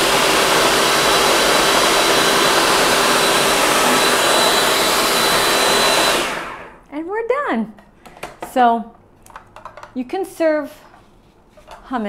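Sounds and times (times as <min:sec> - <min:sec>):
food processor motor whirring: 0:00.0 - 0:06.8.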